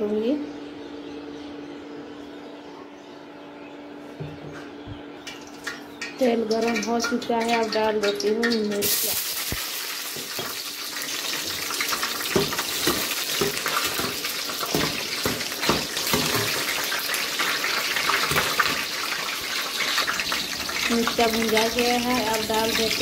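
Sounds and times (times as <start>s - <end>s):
oil popping and crackling: 5.2s - 23.0s
chillies sizzling in hot oil: 6.5s - 23.0s.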